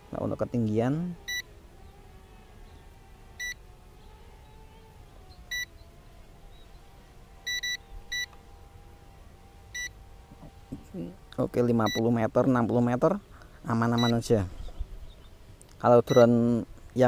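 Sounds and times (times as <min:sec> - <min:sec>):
drone motors humming: 0:00.0 - 0:17.0
short electronic beeps: 0:07.5 - 0:08.3, 0:11.8 - 0:12.1, 0:14.0 - 0:14.2, 0:16.1 - 0:16.3.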